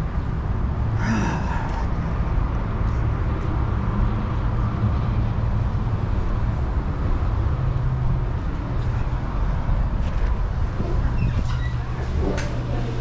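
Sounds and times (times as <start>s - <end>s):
glass door opening: 10.8s - 12.7s.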